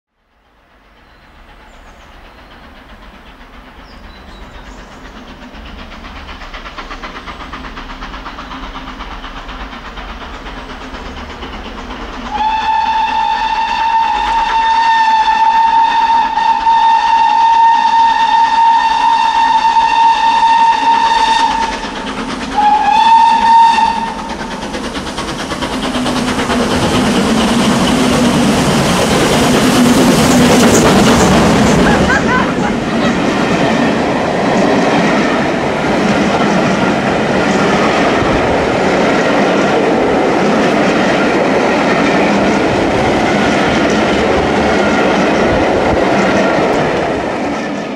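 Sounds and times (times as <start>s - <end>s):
steam locomotive running: 0.2s - 47.9s
steam whistle: 12.3s - 21.9s, 22.6s - 24.5s.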